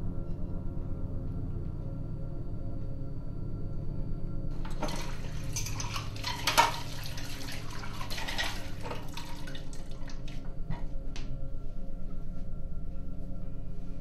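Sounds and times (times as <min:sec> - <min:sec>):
low steady hum: 0:00.0 - 0:14.0
tap water splashing into sink: 0:04.6 - 0:10.3.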